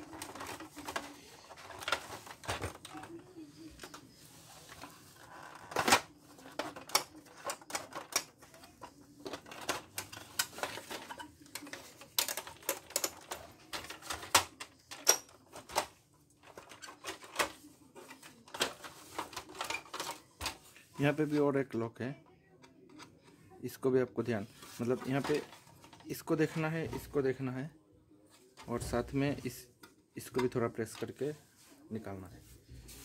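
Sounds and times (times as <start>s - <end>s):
plastic clicks and knocks: 5.5s - 20.6s.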